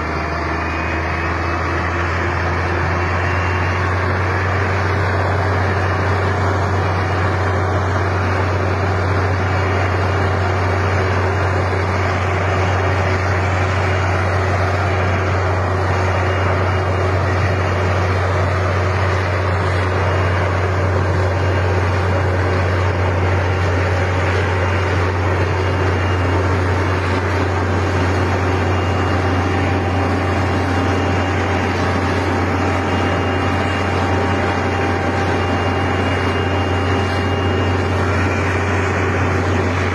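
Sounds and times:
snow blower engine drone: 0.0 - 39.9.

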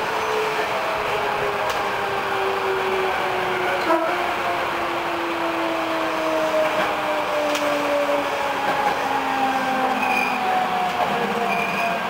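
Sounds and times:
wheels rumbling on rail: 0.0 - 12.0
brake squeal: 10.0 - 10.4, 11.5 - 12.0.

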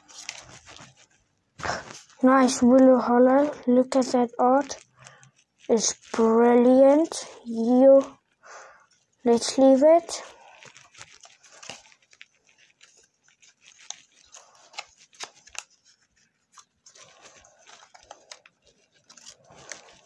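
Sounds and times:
cards sliding against cards: 9.4 - 20.0.

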